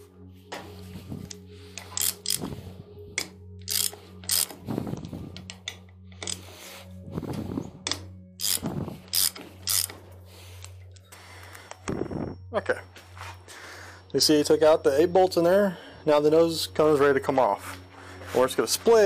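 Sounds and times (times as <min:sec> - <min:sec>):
low hum: 0:00.0 - 0:19.0
ratchet wrench clicking: 0:01.8 - 0:02.4, 0:03.2 - 0:04.6, 0:07.9 - 0:10.0.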